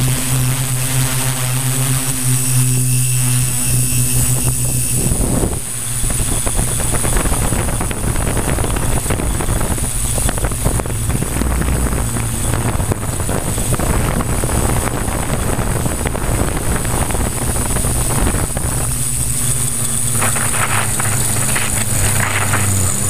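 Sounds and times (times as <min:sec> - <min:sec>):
drone motors whining: 0:00.0 - 0:23.0
wind buffeting microphone: 0:02.2 - 0:23.0.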